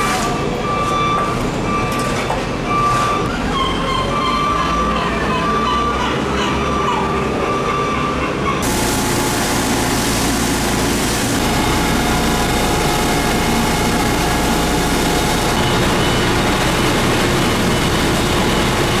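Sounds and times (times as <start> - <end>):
high-pressure hose jet hissing: 8.6 - 12.4
truck engine and pump humming: 8.6 - 19.0.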